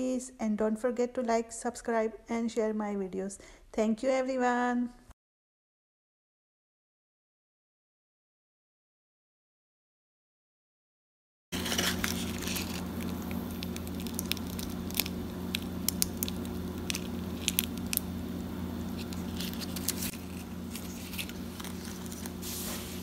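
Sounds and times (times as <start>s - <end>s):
pastry crackling and crunching: 11.6s - 23.0s
steady low hum: 11.6s - 23.0s.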